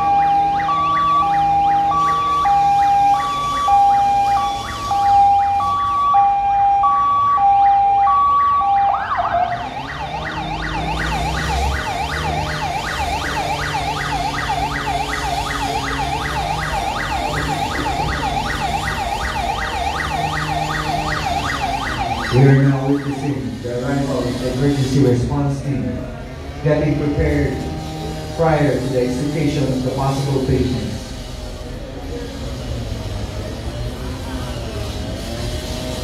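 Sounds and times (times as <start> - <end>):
emergency vehicle siren: 0.0 - 36.0.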